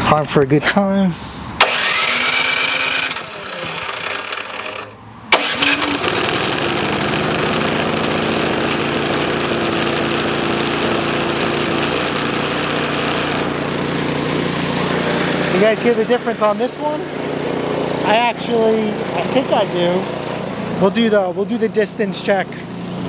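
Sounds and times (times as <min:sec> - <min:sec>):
snow blower engine running: 0:01.6 - 0:23.0.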